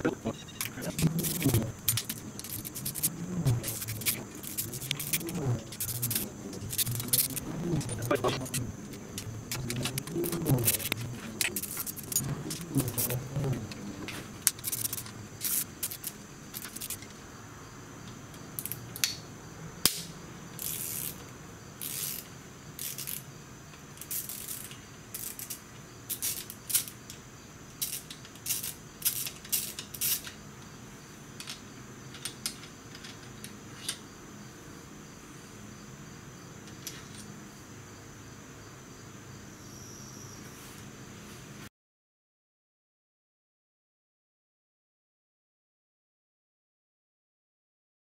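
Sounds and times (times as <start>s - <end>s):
ratchet wrench clicking: 14.5s - 17.0s, 20.6s - 21.2s, 21.8s - 23.2s, 24.0s - 27.0s, 27.8s - 30.3s.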